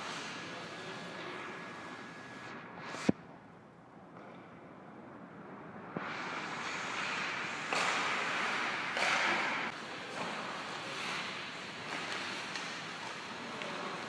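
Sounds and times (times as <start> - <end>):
skates scraping on ice: 6.1 - 9.6, 10.2 - 12.8.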